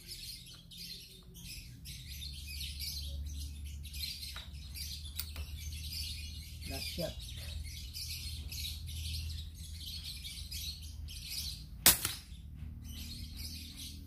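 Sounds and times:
birds chirping: 0.0 - 14.0
air rifle shot: 11.8 - 12.3.

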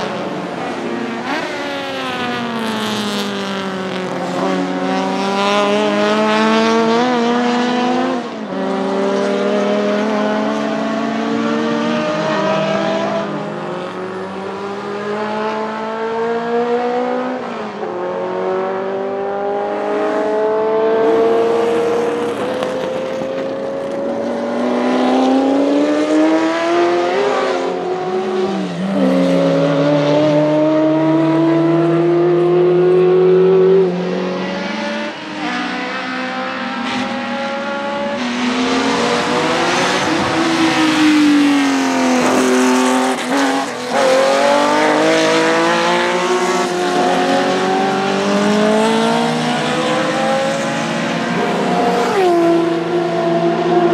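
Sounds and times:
race car engines at full throttle: 0.0 - 53.9.

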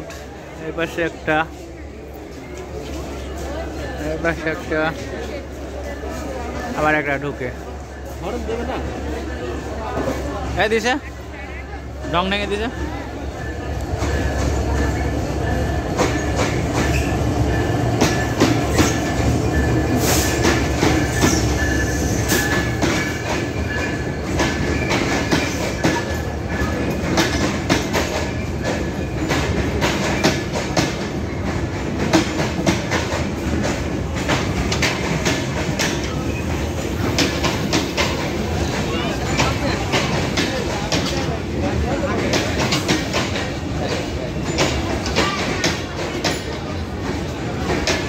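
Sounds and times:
train wheels clicking over rail joints: 13.8 - 48.0.

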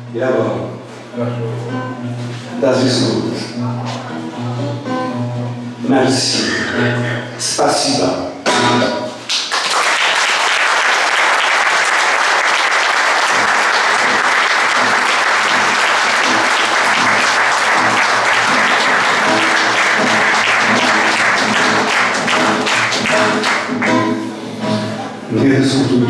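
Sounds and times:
soft classical guitar: 0.0 - 9.3, 14.8 - 26.0
audience applauding: 9.2 - 24.3.

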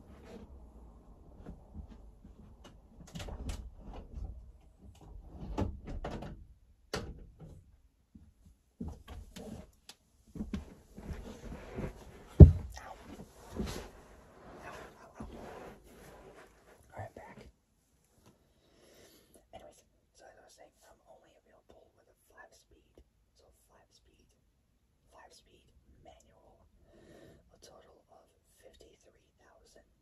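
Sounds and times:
loud thump: 12.4 - 12.7.

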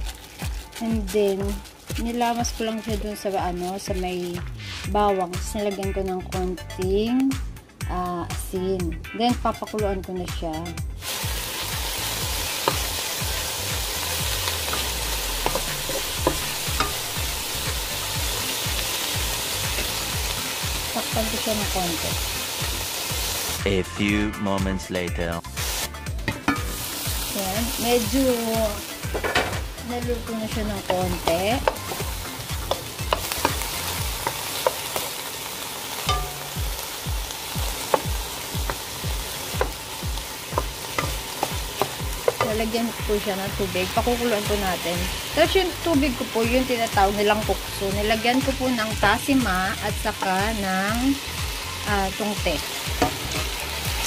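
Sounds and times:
meat sizzling in frying pan: 0.0 - 4.4, 11.0 - 23.7, 25.5 - 54.0
spatula tapping pan: 30.8 - 35.0, 36.1 - 36.6, 40.4 - 42.6.

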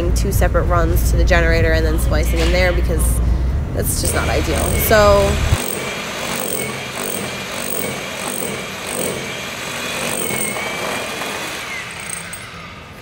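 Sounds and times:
hammer drill drilling into brick: 4.0 - 12.9.

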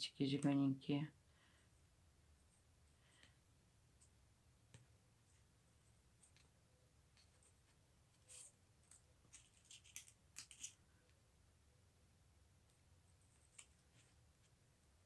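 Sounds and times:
faint clicks and rustles: 2.4 - 11.2.

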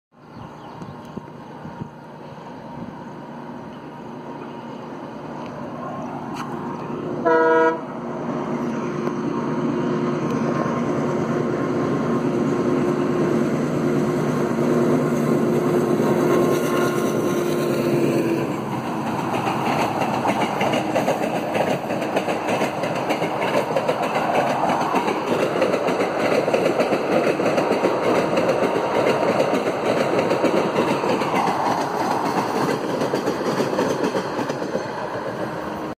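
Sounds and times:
locomotive engine drone: 0.2 - 35.9
train horn blast: 7.2 - 7.9
train coaches clattering over rails: 10.1 - 35.9.

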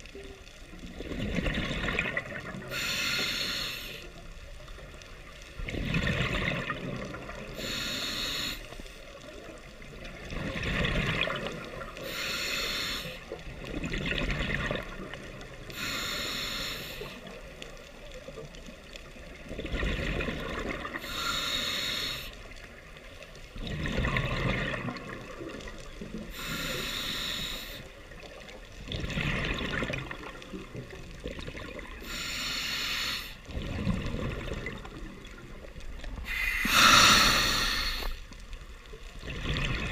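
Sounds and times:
gurgling exhaled bubbles: 0.8 - 2.8, 5.5 - 8.0, 9.3 - 12.2, 13.3 - 15.9, 19.2 - 21.2, 23.5 - 26.6, 28.8 - 32.2, 33.5 - 38.2, 39.1 - 39.9
regulator inhale hiss: 2.6 - 4.3, 7.5 - 9.2, 12.0 - 13.4, 15.7 - 17.4, 21.0 - 22.6, 26.3 - 28.0, 32.0 - 33.5, 36.1 - 38.3.

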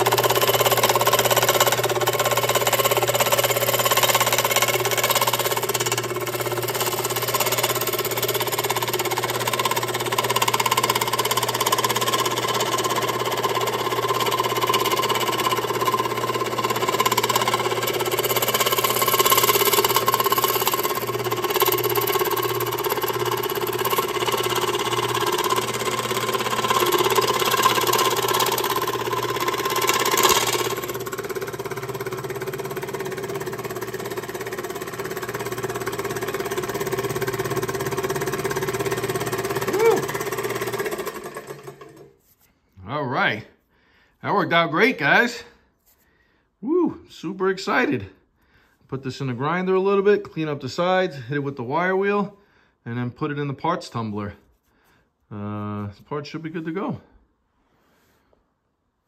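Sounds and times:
scroll saw cutting metal: 0.0 - 42.2.

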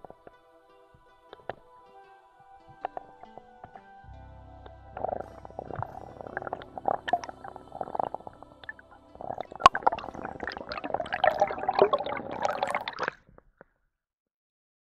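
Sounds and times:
underwater gurgling and crackling: 5.0 - 13.3.

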